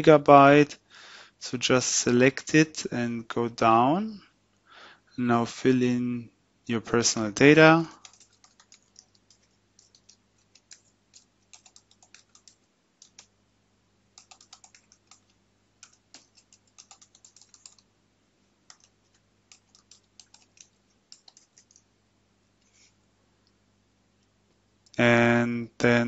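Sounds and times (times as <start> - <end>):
faint keyboard typing: 7.8 - 13.4, 14.1 - 17.9, 18.6 - 21.9.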